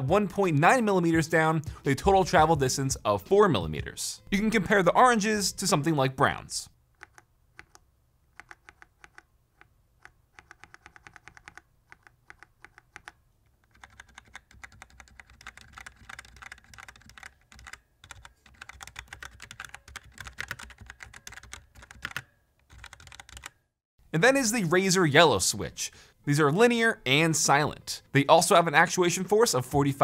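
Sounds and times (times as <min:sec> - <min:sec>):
typing on mechanical keyboard: 0:07.0 - 0:23.6.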